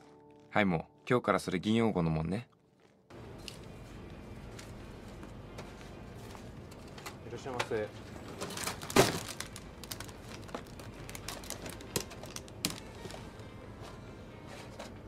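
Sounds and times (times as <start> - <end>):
packaged goods clicking and rustling: 6.3 - 13.6
plastic basket set down: 8.4 - 9.5.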